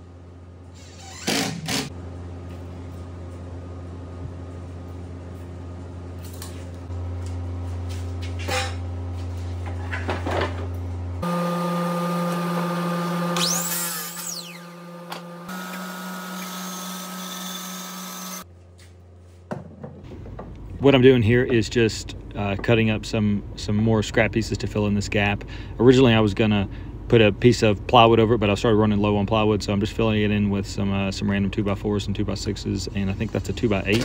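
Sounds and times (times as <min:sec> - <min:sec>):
low motor hum: 0:01.9 - 0:18.8
saw motor whine cutting wood: 0:11.2 - 0:18.4.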